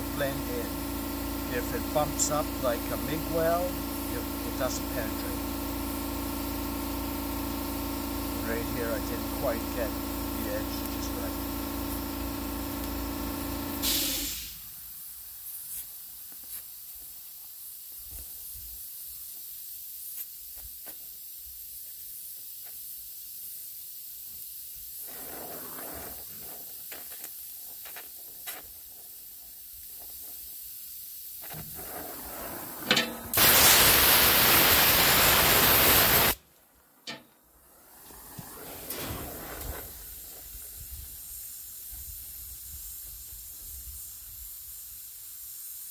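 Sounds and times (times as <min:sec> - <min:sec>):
steady hum: 0:00.0 - 0:14.7
loud hiss: 0:00.0 - 0:45.9
welding torch flame hissing: 0:00.0 - 0:45.9.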